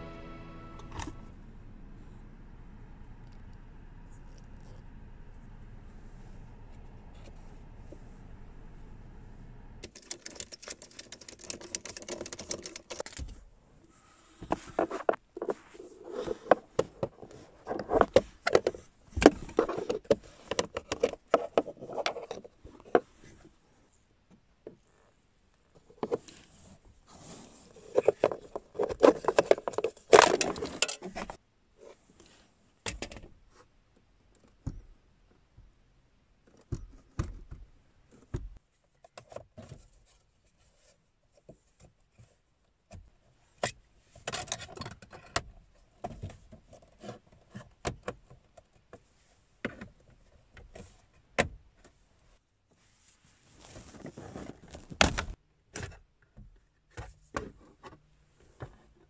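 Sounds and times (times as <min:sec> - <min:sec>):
plastic trim pieces rattling: 0:09.8 - 0:13.2.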